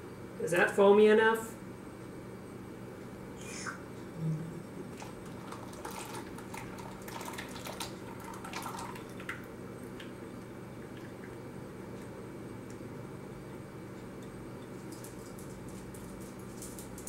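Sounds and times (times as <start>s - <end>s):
liquid pouring in thin stream: 4.9s - 9.5s
liquid drips and spatters: 4.9s - 11.4s.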